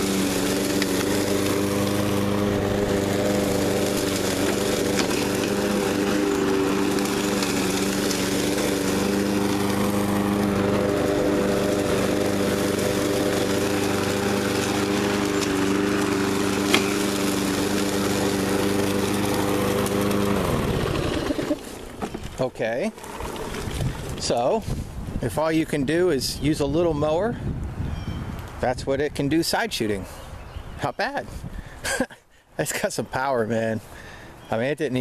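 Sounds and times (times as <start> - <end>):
lawn mower running: 0.0 - 26.3
blade cutting leaves and twigs: 4.0 - 9.1, 16.6 - 18.0.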